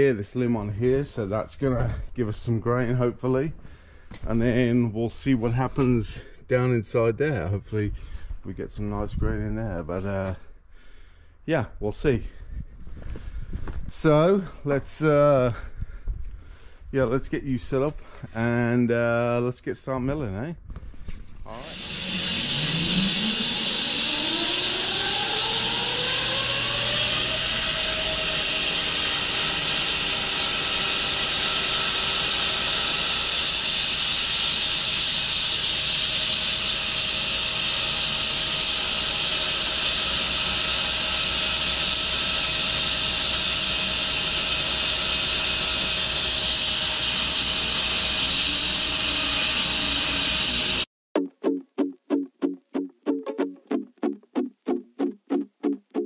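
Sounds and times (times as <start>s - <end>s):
bandsaw mill sawing log: 21.5s - 50.9s.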